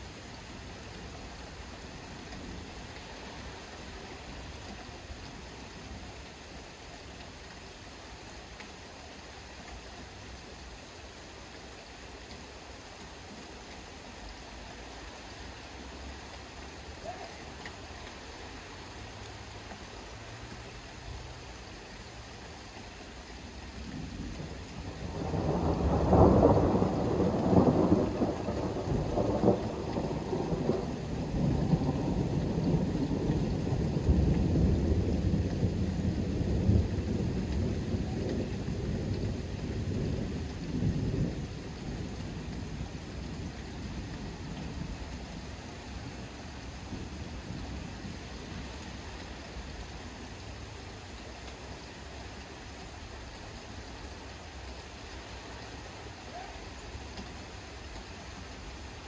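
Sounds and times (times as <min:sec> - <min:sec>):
distant thunder rumbling: 0:23.7 - 0:51.2.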